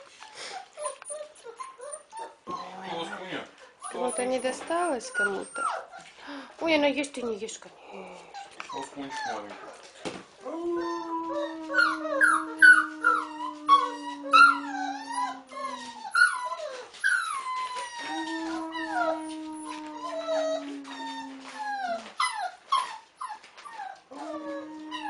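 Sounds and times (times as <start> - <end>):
man howling low notes: 10.4 - 16.0
wolf pup howling and yipping: 10.4 - 25.0.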